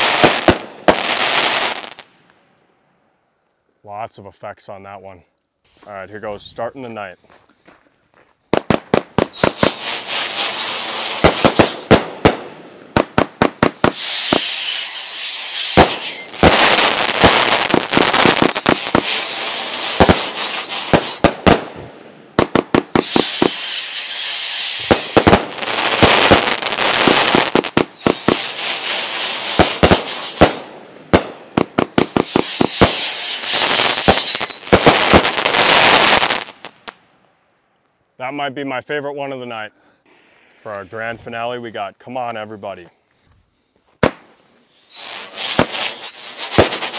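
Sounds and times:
firework crackling: 0.0 - 2.3, 8.5 - 37.0, 44.0 - 46.9
firework launch reports and bangs: 8.6 - 36.7, 44.9 - 46.9
high wavering firework whistle: 9.2 - 12.1, 13.6 - 21.4, 22.8 - 30.8, 31.8 - 36.6, 44.6 - 46.9.

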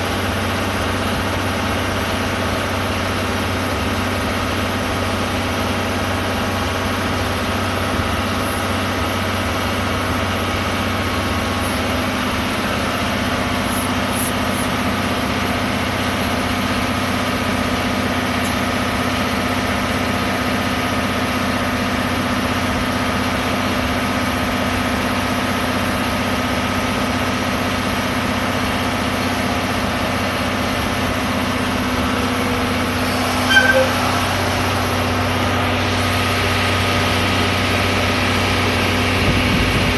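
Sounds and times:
diesel locomotive idling: 0.0 - 39.9
short high tones: 33.0 - 34.9.

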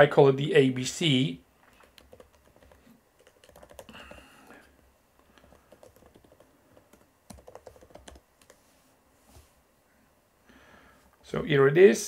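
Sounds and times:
typing on a keyboard: 1.7 - 4.3, 5.4 - 8.6.

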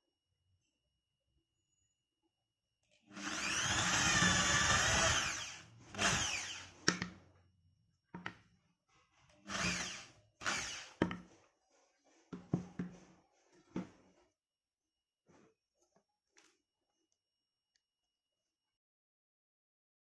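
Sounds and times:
electric drill boring into wood: 3.1 - 6.8, 9.4 - 11.0.

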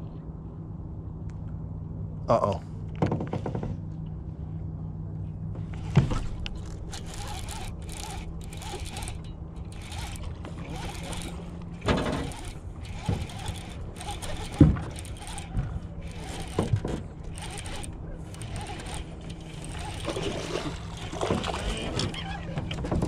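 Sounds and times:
fishing reel gears whirring: 5.8 - 23.0.

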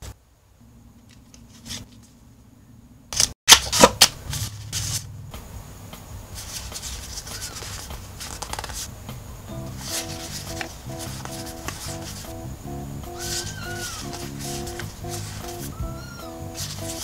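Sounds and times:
paper and cards rustling: 1.1 - 2.2, 3.2 - 5.1, 6.3 - 8.9, 9.7 - 12.4, 13.2 - 17.0.

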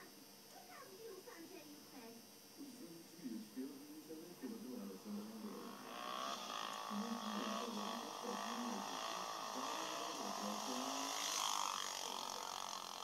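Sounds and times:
dirt bike engine revving: 4.8 - 13.0.

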